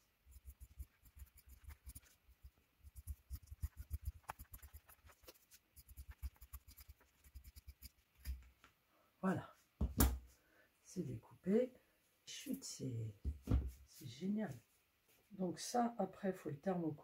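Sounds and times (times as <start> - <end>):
scissors snipping fabric: 2.9 - 8.4.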